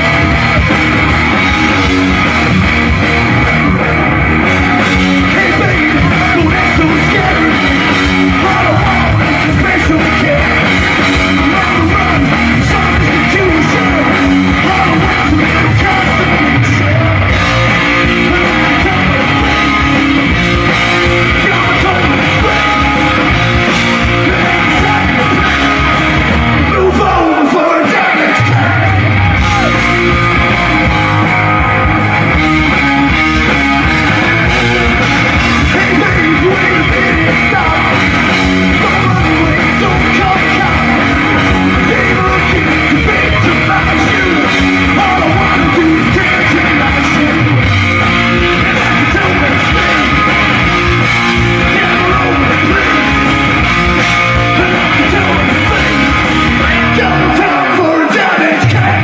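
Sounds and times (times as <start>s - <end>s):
hard rock band playing: 0.0s - 59.0s
man singing into microphone: 5.1s - 17.4s, 18.1s - 19.9s, 21.2s - 23.2s, 24.1s - 26.0s, 26.7s - 29.7s, 35.6s - 47.6s, 48.7s - 50.3s, 51.6s - 53.3s, 54.4s - 59.0s.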